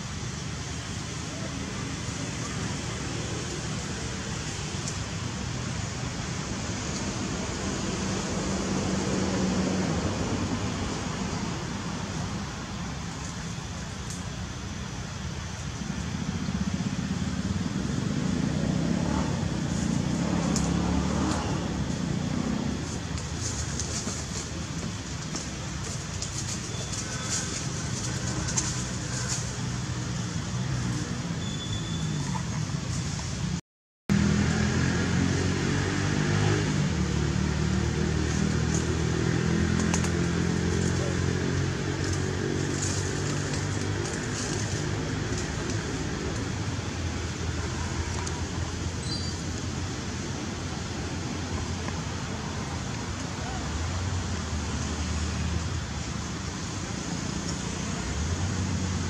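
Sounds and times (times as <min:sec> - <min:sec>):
passing vehicle engine rumble: 0:00.0 - 0:59.0.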